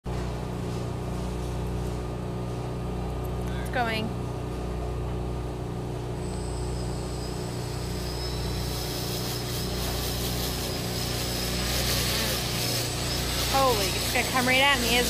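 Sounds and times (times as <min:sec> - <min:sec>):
high-pitched propeller whine: 0:00.1 - 0:15.0
drone motors whirring: 0:06.0 - 0:15.0.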